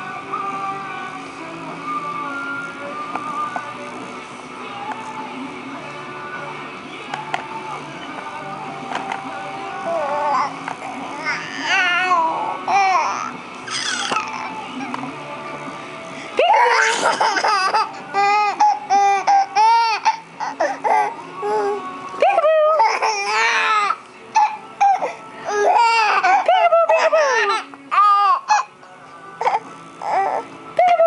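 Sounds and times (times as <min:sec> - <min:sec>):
baby giggling: 0:16.4 - 0:21.8, 0:24.4 - 0:28.7.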